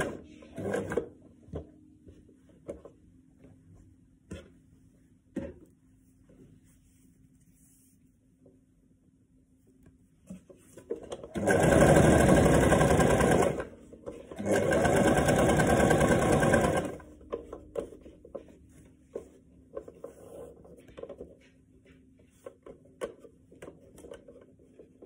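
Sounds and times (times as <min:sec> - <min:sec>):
sewing machine stitching: 0:00.0 - 0:01.1, 0:11.1 - 0:17.1.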